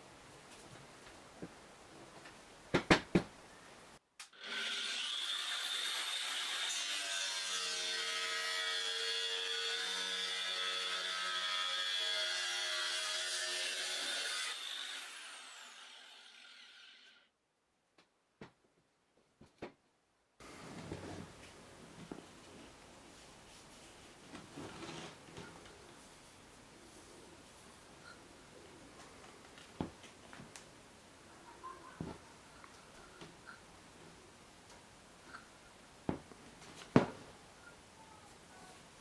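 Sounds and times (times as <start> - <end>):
angle grinder cutting: 4.3 - 17.2.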